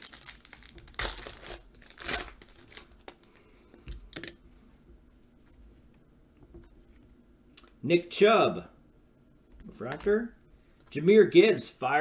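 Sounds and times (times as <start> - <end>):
foil pack tearing: 0.0 - 3.2
foil crinkling and rustling: 0.0 - 3.4.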